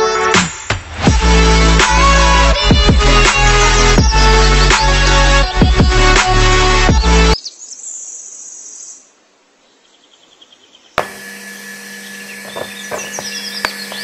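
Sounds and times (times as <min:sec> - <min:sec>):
electronic music heavy beat: 0:00.4 - 0:07.4
toy motor humming: 0:11.0 - 0:14.0.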